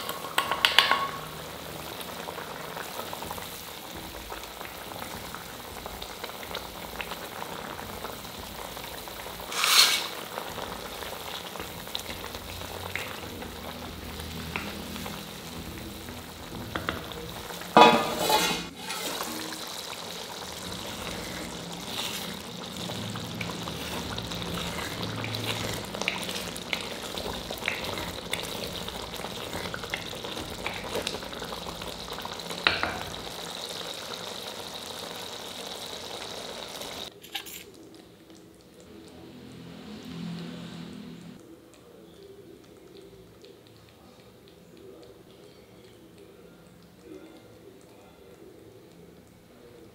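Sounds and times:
sauce sizzling in a pan: 0:00.0 - 0:39.0
utensil scraping and clinking pan: 0:09.5 - 0:10.2, 0:17.8 - 0:19.6.

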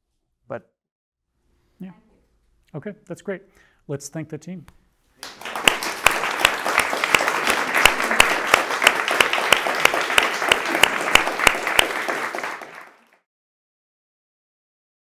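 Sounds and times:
audience applauding: 0:05.2 - 0:13.2
close hand claps: 0:05.2 - 0:13.3.

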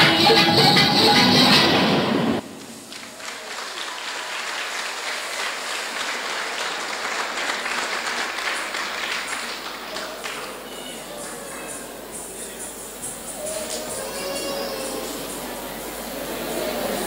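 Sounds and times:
dance music: 0:00.0 - 0:02.4
audience applauding: 0:02.6 - 0:12.1.

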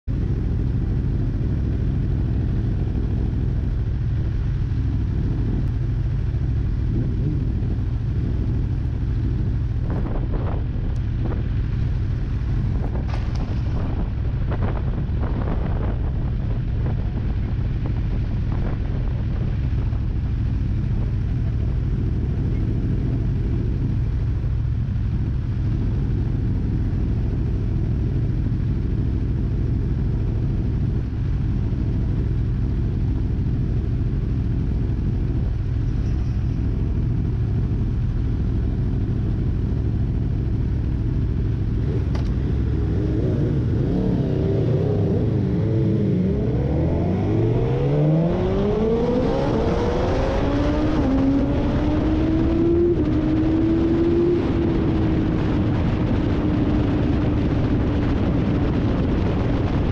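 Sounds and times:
motorcycle engine idling: 0:00.1 - 0:44.0.

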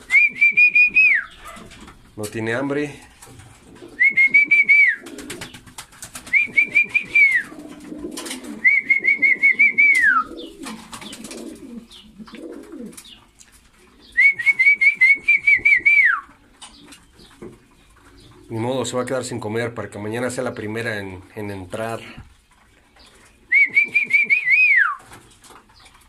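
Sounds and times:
person whistling warbling call: 0:00.0 - 0:01.4, 0:04.0 - 0:05.0, 0:06.3 - 0:07.5, 0:08.6 - 0:10.4, 0:14.2 - 0:16.3, 0:23.5 - 0:25.0
pigeons cooing: 0:00.0 - 0:19.0, 0:22.1 - 0:26.0
birds pecking at grain feeders: 0:00.0 - 0:26.0.

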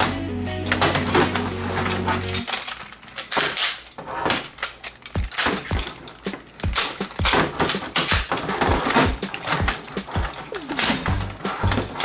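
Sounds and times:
plastic toy clicking and snapping: 0:02.3 - 0:03.9, 0:04.6 - 0:12.0.

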